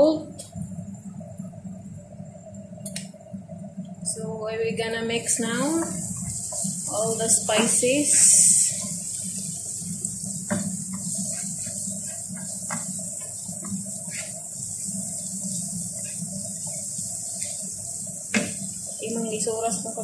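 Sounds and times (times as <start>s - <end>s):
steady hum: 0.0s - 20.0s
vegetables sizzling in a frying pan: 5.1s - 20.0s
spatula scraping a pan: 10.4s - 17.7s.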